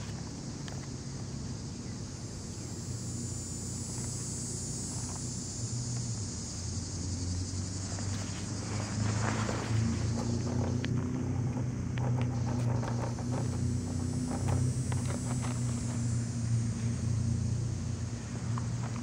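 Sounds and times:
crickets chirping: 0:00.0 - 0:19.0
low steady hum: 0:00.0 - 0:19.0.

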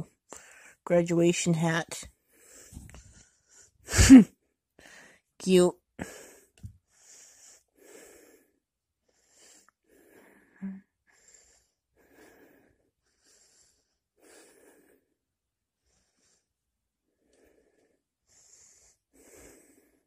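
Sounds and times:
faint breathing: 0:02.2 - 0:03.8, 0:04.8 - 0:05.3, 0:06.0 - 0:15.2, 0:15.8 - 0:20.0.

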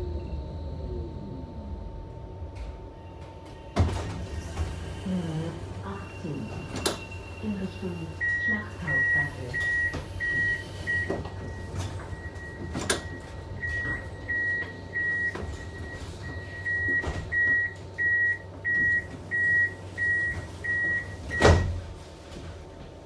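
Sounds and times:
door warning beeps: 0:05.8 - 0:21.8
doors shutting thump: 0:21.3 - 0:21.8.

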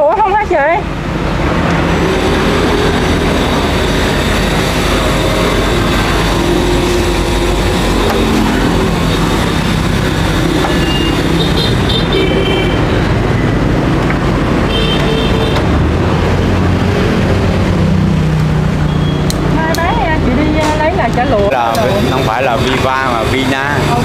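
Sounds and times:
street traffic: 0:00.0 - 0:24.0
short high beeps: 0:10.7 - 0:11.2, 0:18.8 - 0:19.3.

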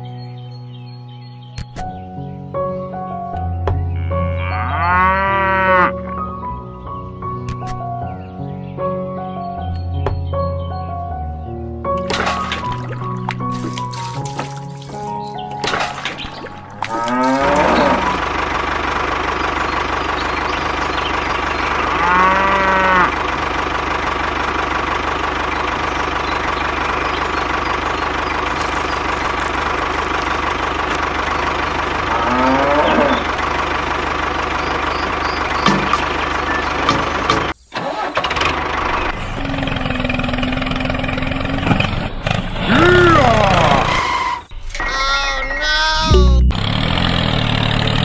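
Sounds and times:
cow mooing: 0:03.9 - 0:06.3, 0:16.8 - 0:18.3, 0:21.8 - 0:23.2, 0:32.0 - 0:33.4
tractor engine running: 0:05.2 - 0:48.0.

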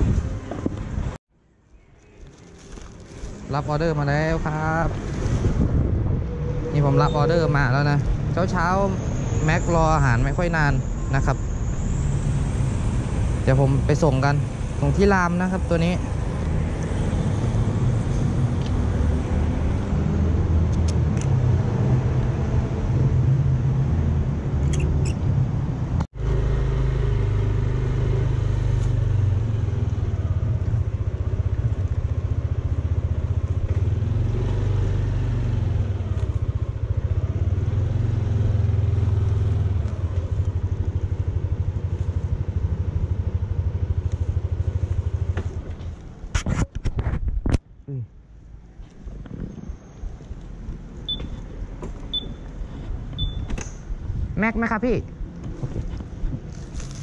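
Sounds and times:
wind rumble on microphone: 0:00.0 - 0:01.2, 0:04.4 - 0:11.2, 0:44.4 - 0:47.8, 0:48.8 - 0:52.2.

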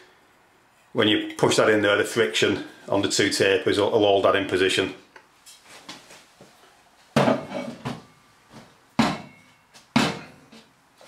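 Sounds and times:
tools clunking on hard surface: 0:07.2 - 0:08.1.

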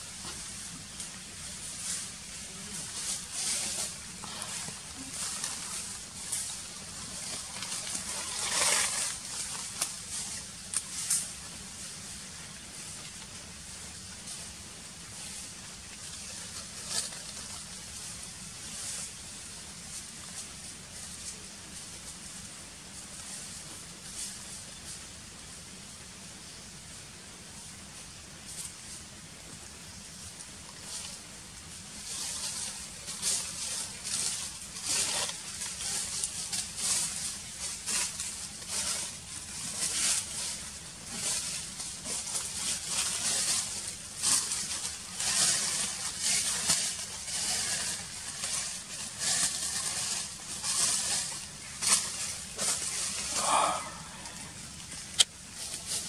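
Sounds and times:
rustling in trees: 0:00.0 - 0:56.0
high hiss: 0:50.2 - 0:56.0.

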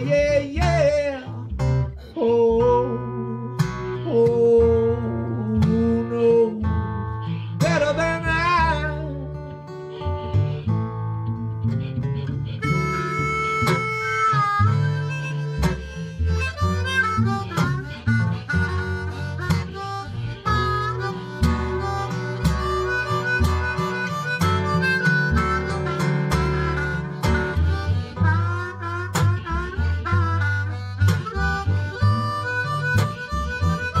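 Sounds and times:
blues harmonica: 0:00.0 - 0:34.0
guitar accompaniment: 0:00.0 - 0:34.0.

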